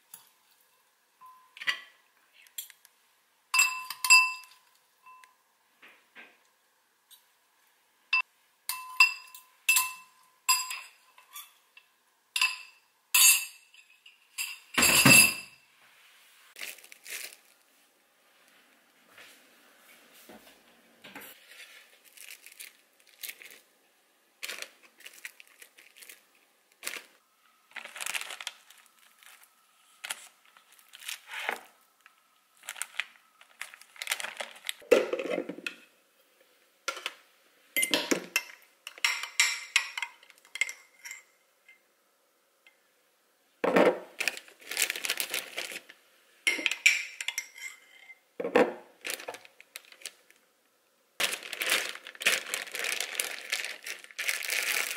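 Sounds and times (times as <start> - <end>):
plastic bag crinkling: 16.6 - 17.7, 21.3 - 23.7, 24.4 - 34.8, 44.1 - 46.0, 49.0 - 50.4, 51.2 - 54.9.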